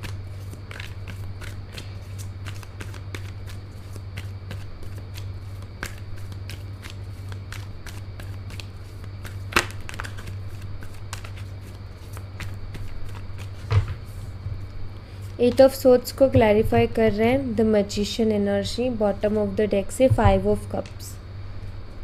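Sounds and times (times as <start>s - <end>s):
cards being shuffled: 0.0s - 14.4s
card slap: 9.5s - 10.3s
low hum: 10.2s - 22.0s.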